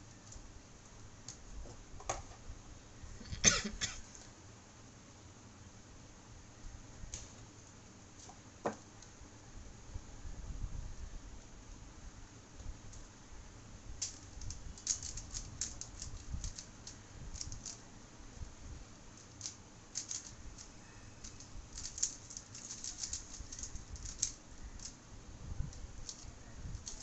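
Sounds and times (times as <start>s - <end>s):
puzzle cube clicking: 14.0s - 17.8s, 19.2s - 25.0s.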